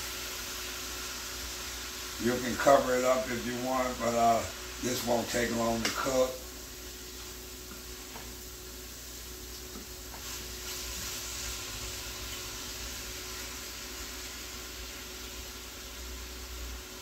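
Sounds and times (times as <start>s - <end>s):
pan sizzling: 0.0s - 17.0s.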